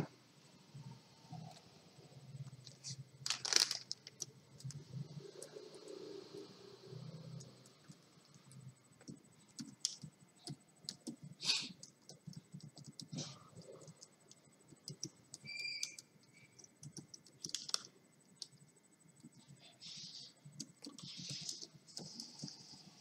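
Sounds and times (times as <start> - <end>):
high whistle-like tone: 15.4 - 16.0.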